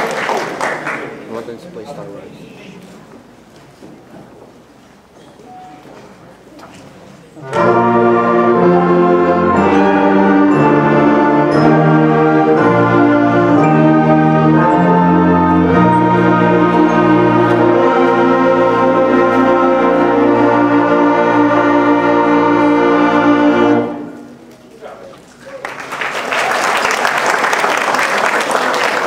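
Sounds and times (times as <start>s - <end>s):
concert band playing a chorale: 7.4s - 24.4s.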